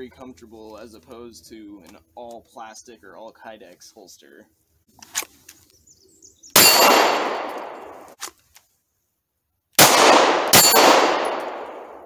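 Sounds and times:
steel plate target ringing: 6.6 - 8.0, 10.5 - 11.8
pistol shot: 6.6 - 8.2, 9.8 - 12.0.

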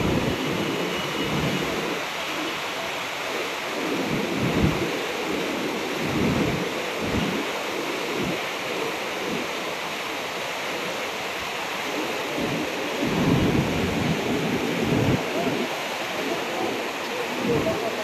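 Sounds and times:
wind buffeting microphone: 0.0 - 2.6, 3.3 - 9.9, 10.7 - 18.0
floodwater roaring: 0.0 - 18.0.

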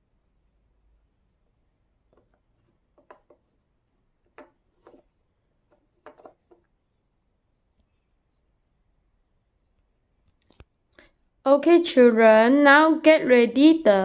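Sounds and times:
fingers tapping on paper: 3.0 - 3.5.

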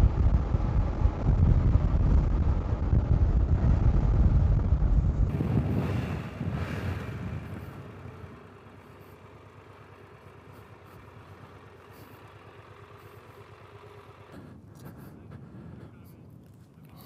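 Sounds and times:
wind rush on microphone: 0.0 - 8.4
motorcycle engine idling: 5.2 - 17.0.

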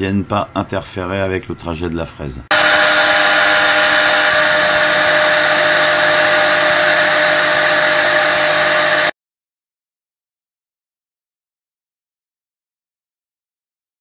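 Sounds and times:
router spindle whine: 2.5 - 9.1.

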